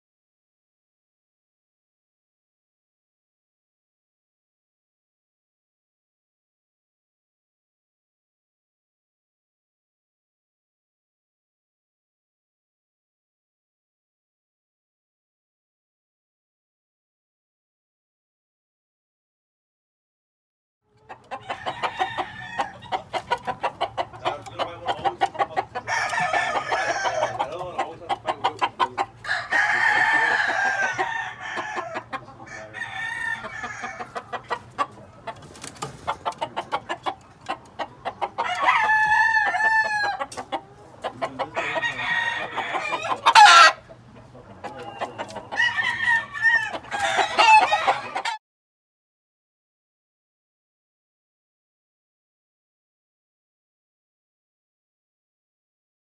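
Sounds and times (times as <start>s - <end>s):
roosters crowing: 21.0s - 35.0s, 38.0s - 43.9s, 44.7s - 48.4s.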